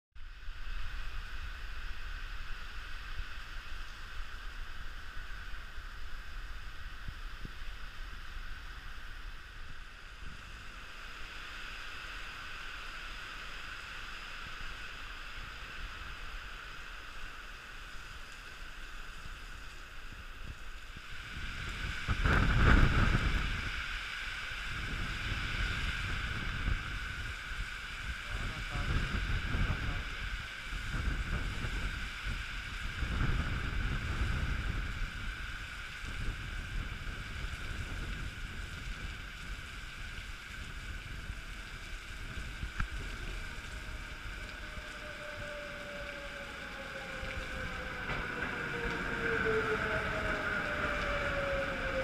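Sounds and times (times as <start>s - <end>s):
heavy rain hissing: 0.2s - 52.0s
wind gusts buffeting microphone: 19.1s - 52.0s.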